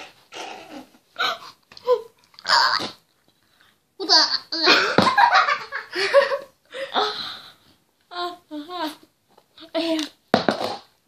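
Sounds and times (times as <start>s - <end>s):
girls laughing: 4.5s - 6.7s.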